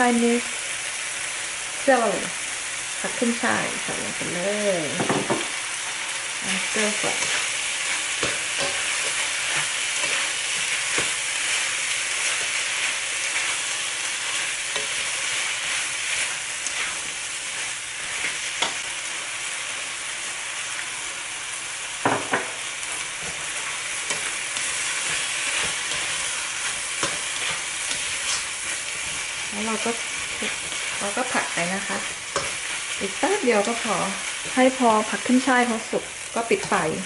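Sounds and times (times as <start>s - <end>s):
food sizzling in a wok: 0.0s - 37.0s
spatula scraping and clacking: 6.9s - 11.6s, 14.2s - 18.8s, 23.2s - 31.3s, 32.1s - 32.9s.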